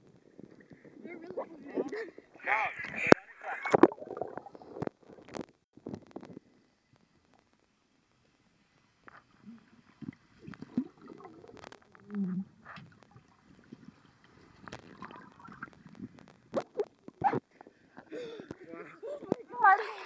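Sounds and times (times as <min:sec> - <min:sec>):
underwater gurgling and sloshing: 0:00.0 - 0:18.0.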